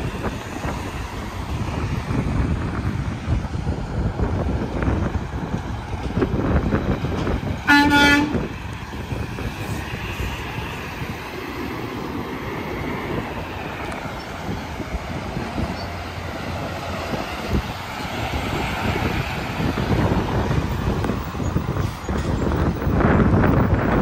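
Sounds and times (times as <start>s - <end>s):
heavy traffic rumbling: 0.0s - 24.0s.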